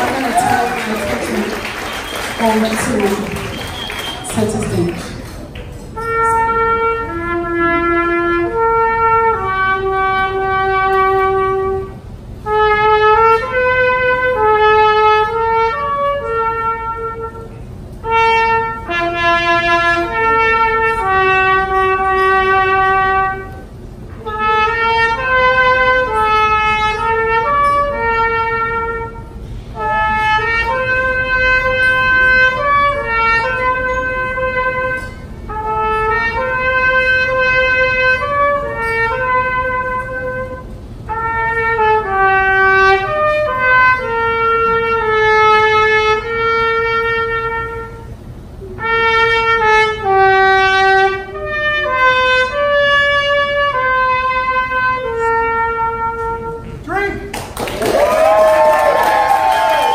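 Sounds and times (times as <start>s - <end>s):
solo wind instrument melody: 6.0s - 56.9s.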